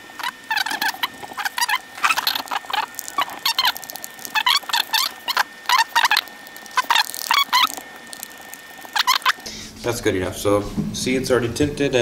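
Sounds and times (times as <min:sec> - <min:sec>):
plastic card squeaking on metal: 0:00.0 - 0:09.5.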